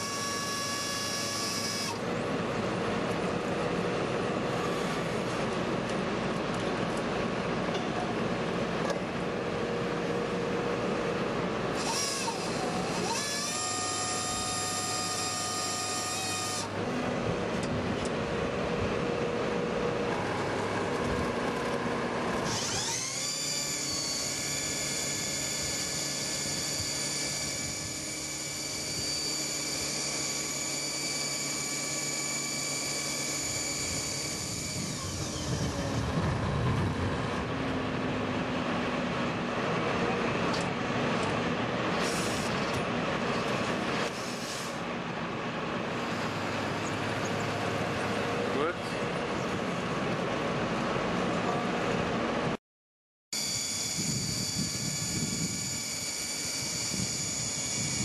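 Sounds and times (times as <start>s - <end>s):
drill head high-pitched whine: 0.0s - 2.1s, 11.8s - 16.8s, 22.4s - 36.1s, 42.0s - 42.6s, 44.0s - 44.8s, 53.4s - 58.0s.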